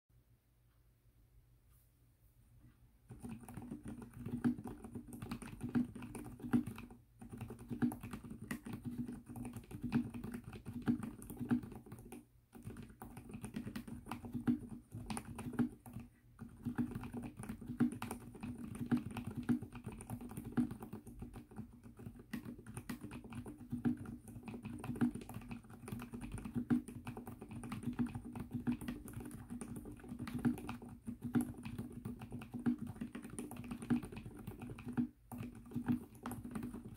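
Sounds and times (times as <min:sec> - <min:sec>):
fast typing on keyboard: 0:03.1 - 0:36.9.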